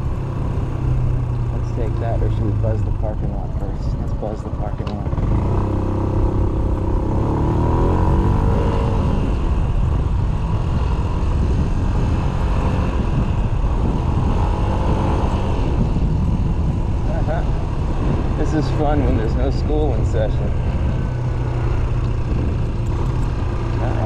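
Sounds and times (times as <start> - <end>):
scooter engine running: 15.6 - 24.0.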